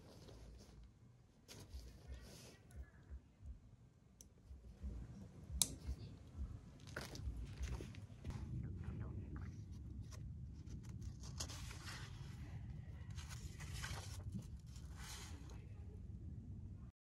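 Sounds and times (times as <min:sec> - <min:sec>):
book pages rustling: 0:00.0 - 0:02.7, 0:06.8 - 0:08.3, 0:09.6 - 0:15.6
low steady rumble: 0:00.0 - 0:16.9
page turning: 0:09.9 - 0:15.6.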